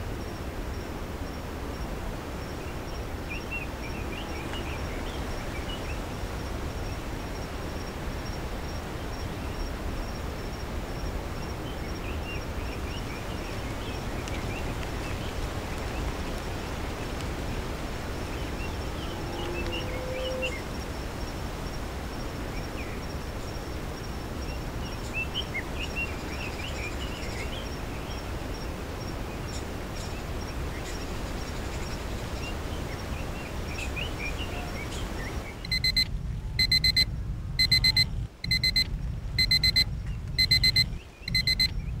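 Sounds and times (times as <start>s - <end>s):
birds chirping: 2.4s - 7.6s, 11.5s - 20.9s, 24.3s - 36.0s, 37.6s - 42.0s
alarm clock beeping: 35.7s - 41.7s.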